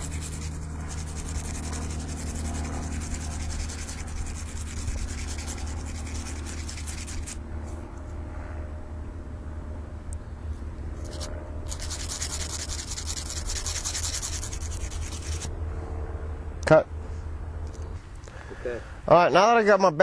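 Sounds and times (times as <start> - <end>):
emery cloth rubbing on metal: 0.0 - 7.4, 11.0 - 15.5.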